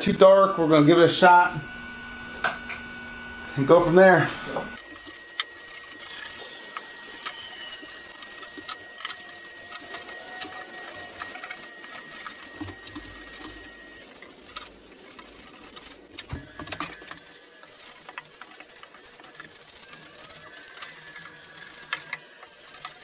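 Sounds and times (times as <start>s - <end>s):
paintbrush scrubbing wood: 4.8s - 23.0s.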